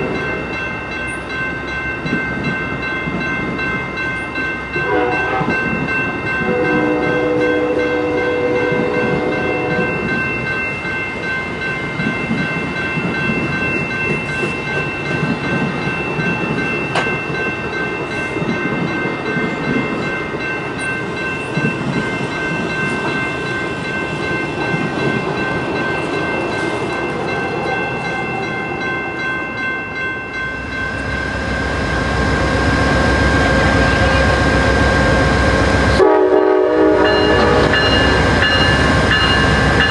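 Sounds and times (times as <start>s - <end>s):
train wheels clattering on rails: 0.0s - 28.7s
crossing warning bell ringing: 0.0s - 39.9s
diesel locomotive rumble: 30.6s - 39.9s.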